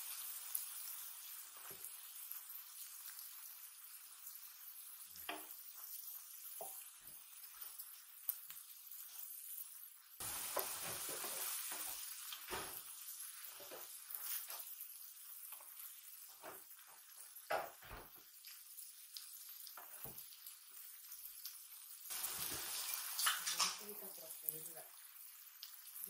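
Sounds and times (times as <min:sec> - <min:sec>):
food sizzling on griddle: 0:00.0 - 0:26.0
utensils clicking and tapping: 0:23.2 - 0:24.0.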